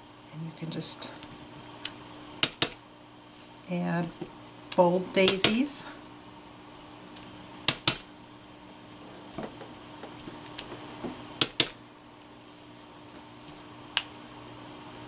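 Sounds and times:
faint steady hum: 0.0 - 15.0
rubber stamp tapping: 2.4 - 2.8, 5.2 - 5.6, 7.7 - 8.0, 11.4 - 11.8.

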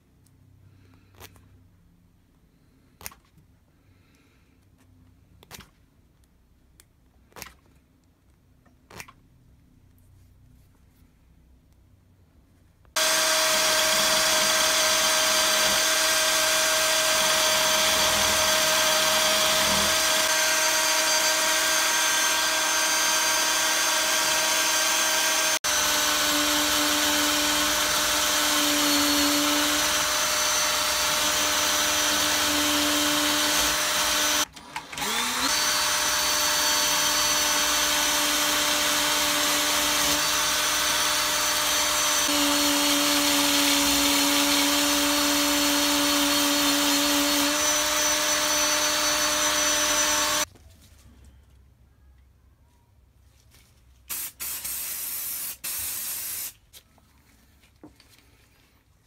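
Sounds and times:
drill whining with abrasive wheel: 13.0 - 50.5.

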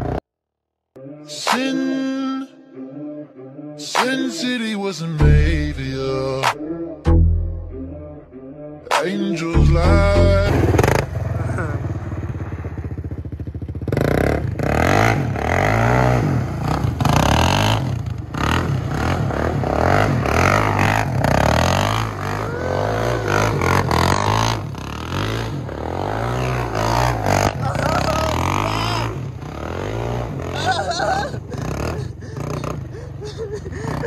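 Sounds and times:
quad engine revving: 0.0 - 0.2, 5.2 - 34.0
wheels spinning on gravel: 10.7 - 13.9.

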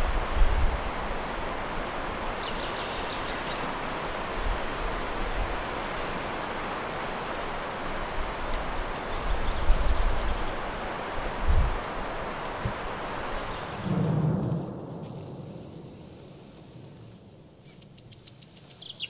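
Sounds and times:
wind gusts on microphone: 0.0 - 17.3
rushing wind or water: 0.0 - 17.6
faint high bird chirps: 17.6 - 19.0.

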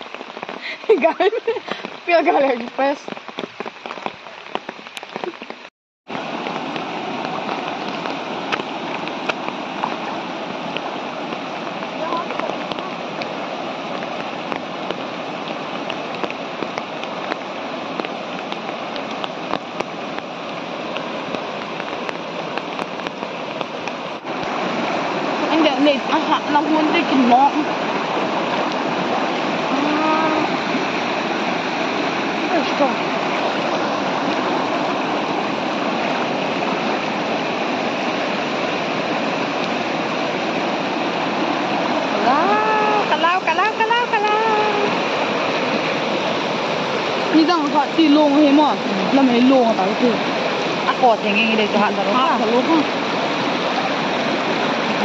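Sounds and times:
raindrops ticking: 0.0 - 24.6
floodwater rushing: 0.0 - 55.0
heavy rain hissing: 0.0 - 55.0.

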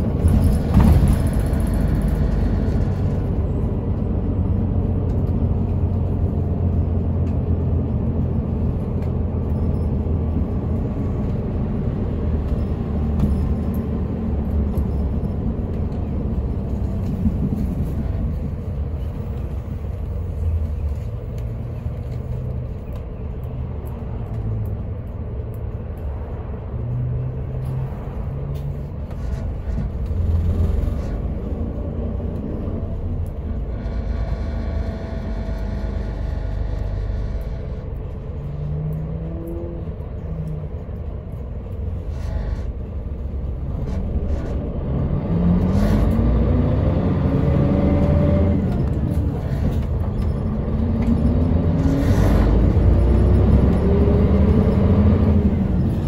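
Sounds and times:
bus engine and road rumble: 0.0 - 56.0.

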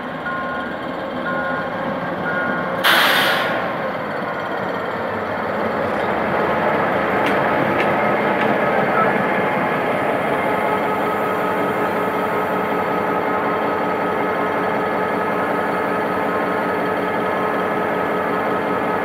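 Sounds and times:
level-crossing signal beeping: 0.2 - 2.8
loud air hiss: 2.8 - 3.7
locomotive rolling past: 3.5 - 19.0.

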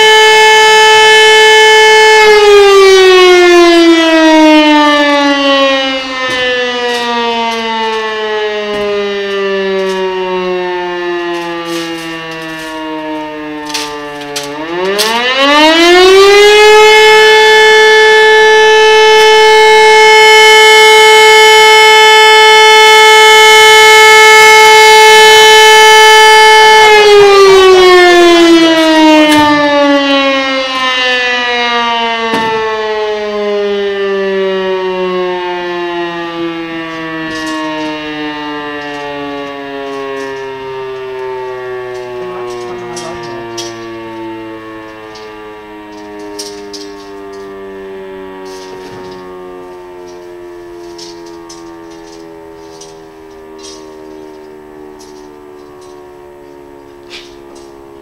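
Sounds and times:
electromechanical siren wailing: 0.0 - 58.0.

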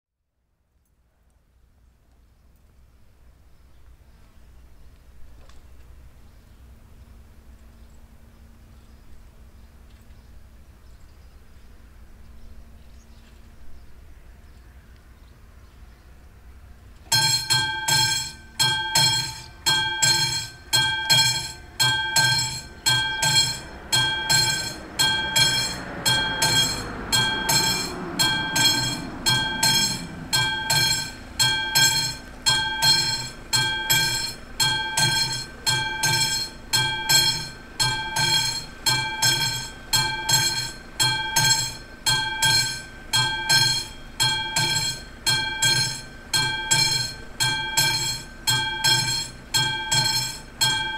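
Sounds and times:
level crossing bell ringing: 17.1 - 50.9.

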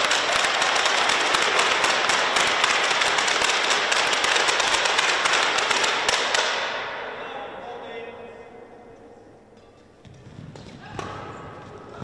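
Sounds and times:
spectators applauding: 0.0 - 6.3.

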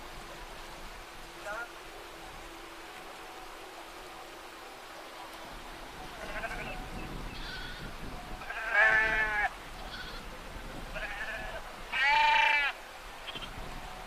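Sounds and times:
faint flock bleating: 6.1 - 10.3, 10.9 - 13.5
loud wavering sheep bleats: 6.2 - 10.2, 10.9 - 13.5.

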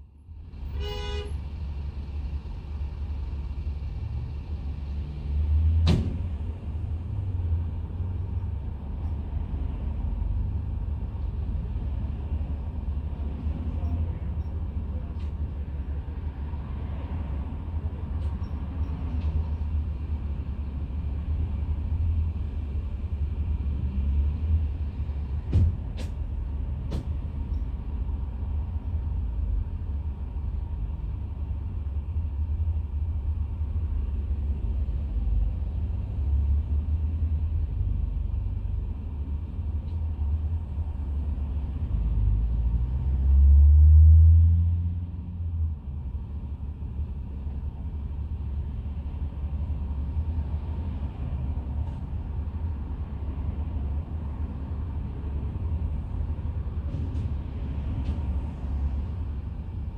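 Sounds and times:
diesel bus engine idling: 0.0 - 41.9.

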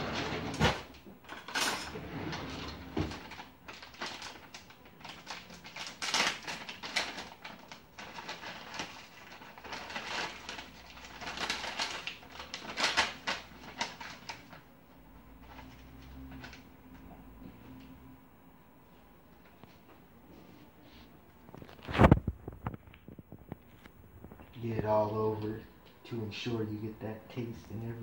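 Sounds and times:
kitchen drawer rummaging: 0.0 - 4.4.

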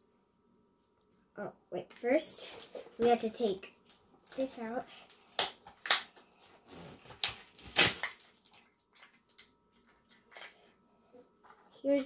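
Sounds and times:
packaging crinkling rips: 5.2 - 9.5.

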